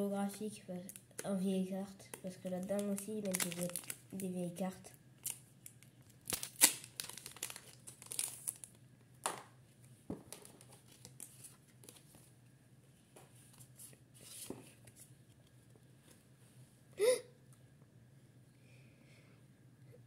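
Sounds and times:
cards rustling: 0:02.1 - 0:04.0, 0:06.3 - 0:08.7
foil wrapper crinkling and tearing: 0:02.5 - 0:04.3, 0:05.2 - 0:08.8.

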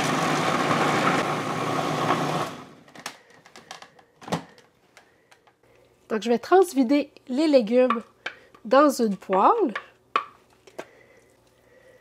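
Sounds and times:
food processor motor chopping: 0:00.0 - 0:02.9.

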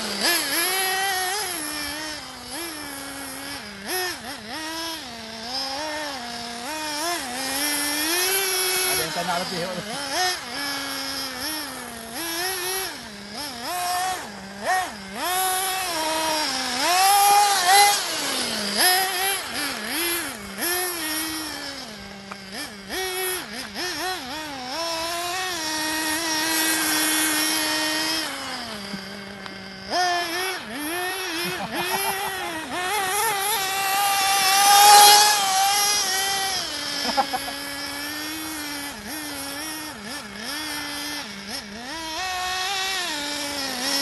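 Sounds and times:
nitro buggy engine buzzing whine: 0:00.0 - 0:44.0.

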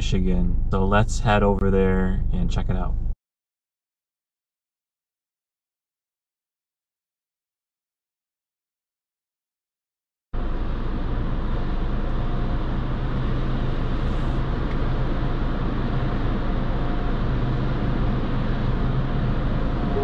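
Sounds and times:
car wash equipment humming: 0:10.4 - 0:20.0.

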